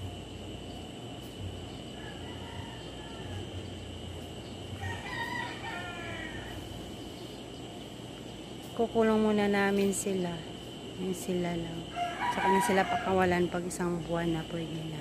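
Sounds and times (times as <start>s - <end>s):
high insect hum: 0.0s - 15.0s
rooster crowing: 1.8s - 6.9s, 11.8s - 13.5s.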